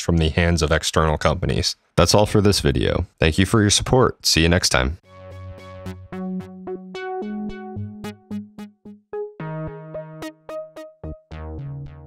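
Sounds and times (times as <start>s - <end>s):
keyboard music: 5.0s - 12.0s.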